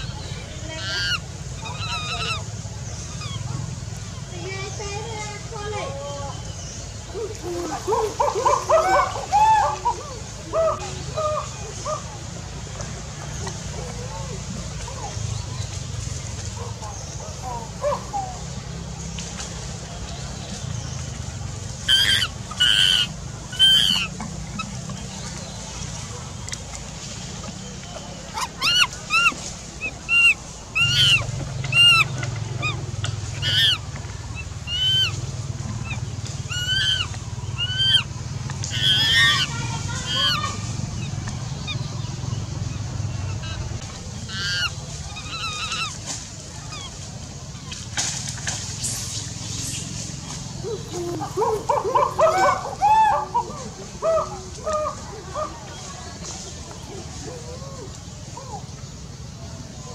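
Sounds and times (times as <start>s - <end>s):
animal high-pitched calls: 0.0s - 3.8s, 21.8s - 24.8s, 28.3s - 41.9s, 43.2s - 47.8s, 50.6s - 55.6s
short animal calls: 28.3s - 33.8s.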